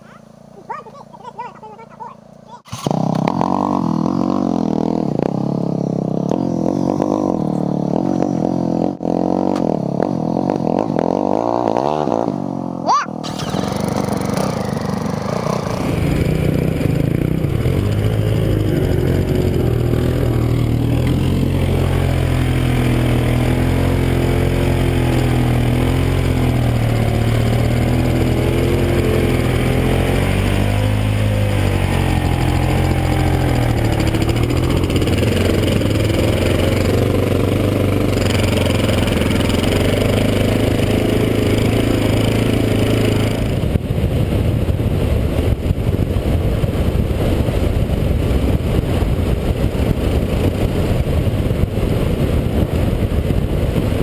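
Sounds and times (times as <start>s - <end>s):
motorbike engine running: 0.1s - 54.0s
wind rushing on microphone: 31.4s - 54.0s.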